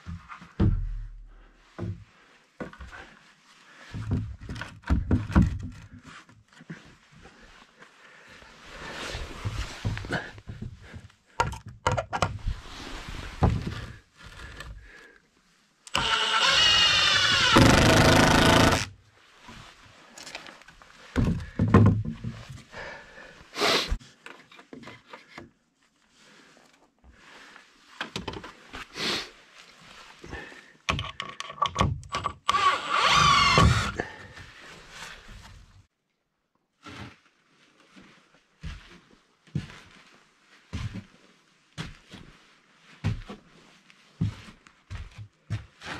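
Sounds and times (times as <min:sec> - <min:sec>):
wood knocking and scraping: 0:00.0 - 0:01.1, 0:04.0 - 0:06.9, 0:09.4 - 0:12.6, 0:13.2 - 0:14.8, 0:21.1 - 0:22.6
impact driver driving screws: 0:15.9 - 0:18.9, 0:32.1 - 0:34.0.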